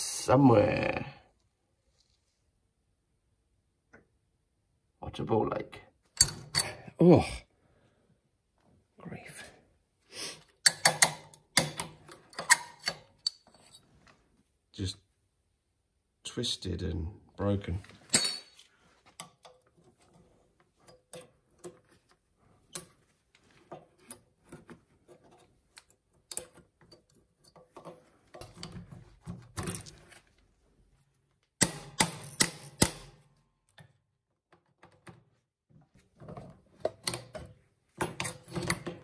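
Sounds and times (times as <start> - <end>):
metal tools clicking and clinking: 6.2 - 6.8, 10.6 - 13.9, 18.0 - 18.6.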